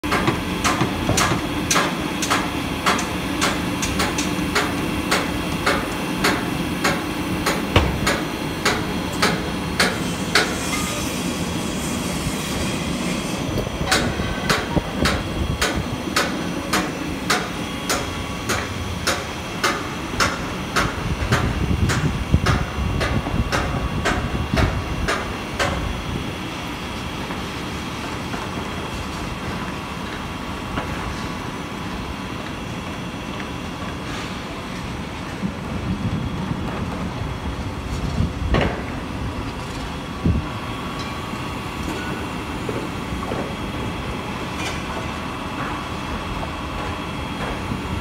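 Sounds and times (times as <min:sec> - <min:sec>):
crane machinery clicking: 0:00.1 - 0:10.6.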